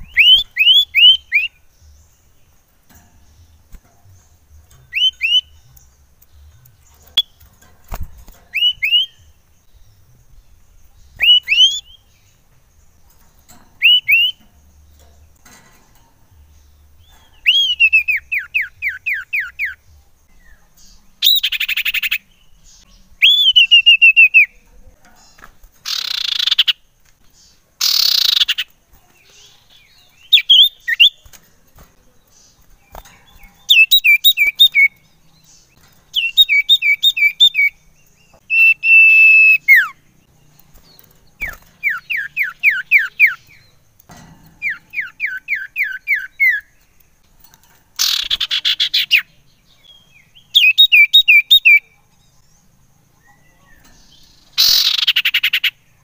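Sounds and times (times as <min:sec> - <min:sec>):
bird whistled song: 0:00.0 - 0:02.2, 0:04.7 - 0:07.5, 0:08.5 - 0:12.4, 0:13.8 - 0:14.4, 0:17.0 - 0:24.6, 0:25.8 - 0:26.8, 0:27.8 - 0:31.4, 0:32.8 - 0:35.1, 0:35.7 - 0:40.1, 0:40.9 - 0:43.8, 0:44.6 - 0:47.0, 0:48.0 - 0:52.0, 0:53.2 - 0:55.8
harsh rasping bird calls: 0:00.0 - 0:52.4, 0:53.2 - 0:56.0.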